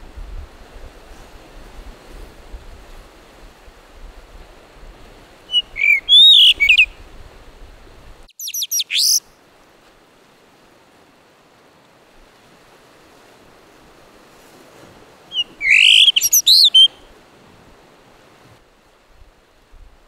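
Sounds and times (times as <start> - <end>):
surf washing on rocks: 0.0 - 20.0
bird singing whistled notes: 5.5 - 7.0, 8.3 - 9.2, 15.3 - 17.0.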